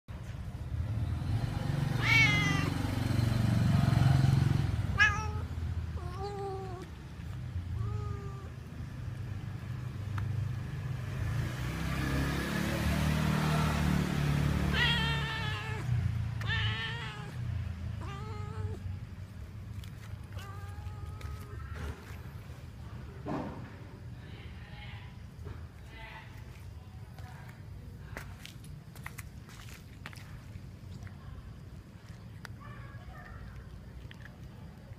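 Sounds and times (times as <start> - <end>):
cat meowing: 1.9 - 2.9, 4.9 - 7.0, 7.7 - 8.7, 14.6 - 18.9, 20.2 - 22.1.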